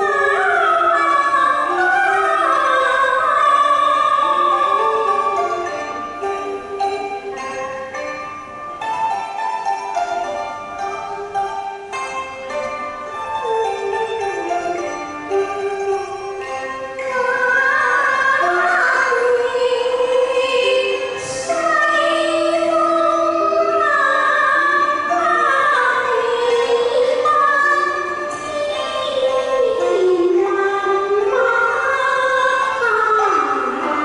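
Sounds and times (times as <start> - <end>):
woman singing opera-style: 0.0 - 5.2, 17.2 - 34.0
instrumental accompaniment: 0.0 - 34.0.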